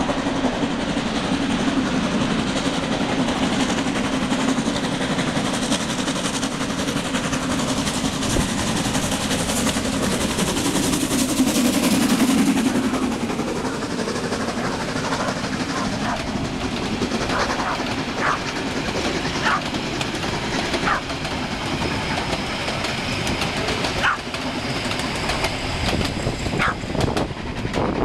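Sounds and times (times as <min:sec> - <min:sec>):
coaches rattling on rails: 0:00.0 - 0:28.0
steam locomotive exhaust beats: 0:00.0 - 0:28.0.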